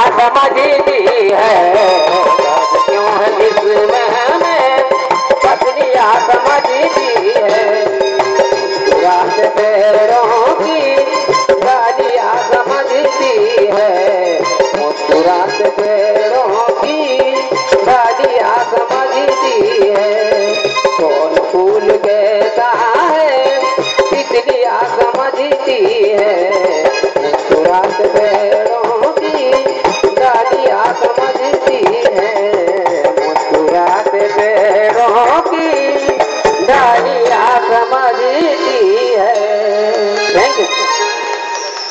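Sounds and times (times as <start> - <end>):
tabla drumming: 0.0 - 41.9
bending melody line: 1.9 - 12.5
steady low drone: 7.5 - 9.7.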